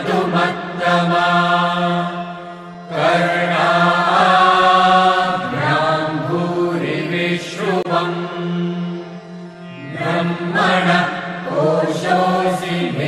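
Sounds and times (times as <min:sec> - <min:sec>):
person chanting: 0:00.0 - 0:09.1.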